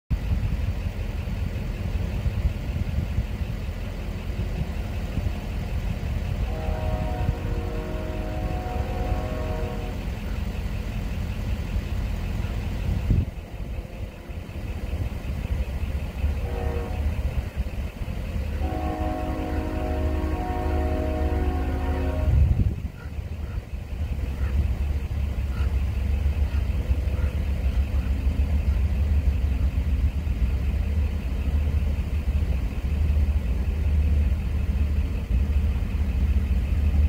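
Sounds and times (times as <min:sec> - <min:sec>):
low rumble: 0:00.1 - 0:37.0
train horn: 0:06.2 - 0:10.4, 0:16.3 - 0:17.4, 0:18.5 - 0:23.6.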